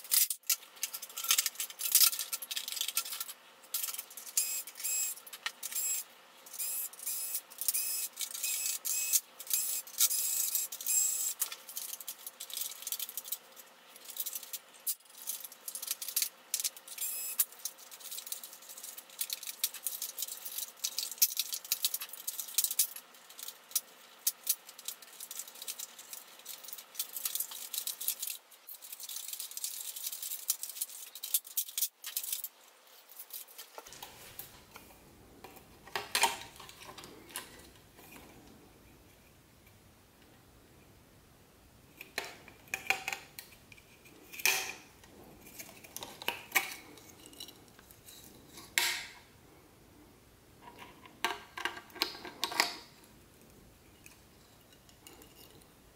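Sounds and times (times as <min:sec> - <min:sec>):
printer parts clattering and rattling: 0:00.0 - 0:05.9, 0:07.5 - 0:34.2, 0:34.8 - 0:38.4.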